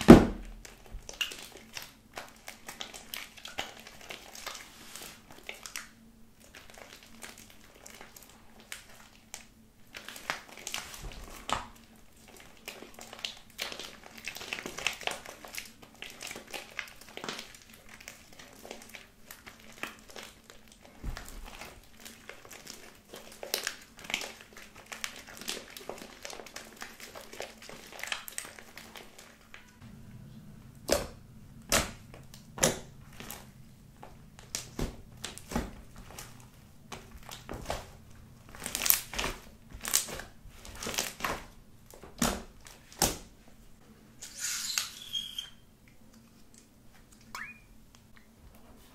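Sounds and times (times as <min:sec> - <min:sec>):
slime squished by hands: 0:30.8 - 0:43.4
slime popping: 0:30.9 - 0:37.9.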